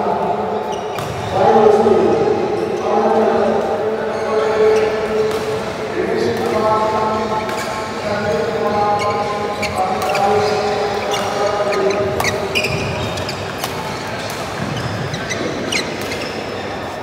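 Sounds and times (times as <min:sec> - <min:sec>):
reverberant hall murmur: 0:00.0 - 0:17.0
shoe squeaks on court floor: 0:00.6 - 0:01.3, 0:08.8 - 0:17.0
rackets striking shuttlecocks: 0:05.0 - 0:16.6.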